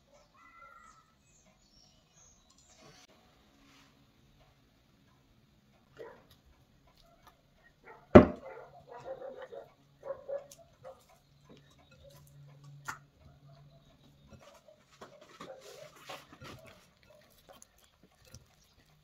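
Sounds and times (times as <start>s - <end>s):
sharp knock: 8.2s - 8.4s.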